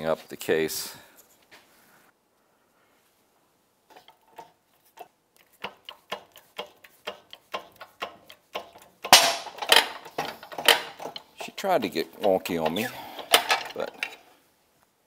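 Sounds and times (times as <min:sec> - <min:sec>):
bearing ticking and clicking: 0:03.9 - 0:14.2
loud cracks of bearing seating: 0:05.4 - 0:14.2.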